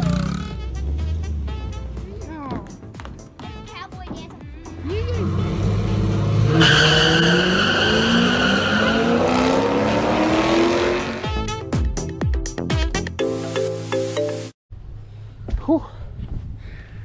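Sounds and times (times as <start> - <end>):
car engines revving hard: 4.8 - 11.3
tire squeal: 6.1 - 10.4.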